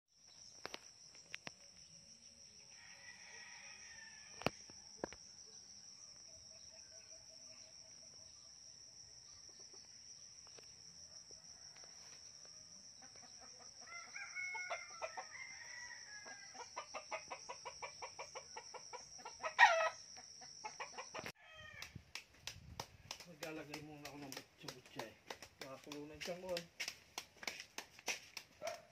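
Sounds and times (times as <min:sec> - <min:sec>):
rooster crowing: 0:02.7 - 0:04.5, 0:13.7 - 0:17.2, 0:19.4 - 0:20.0, 0:21.3 - 0:21.9
chickens clucking: 0:16.8 - 0:21.3.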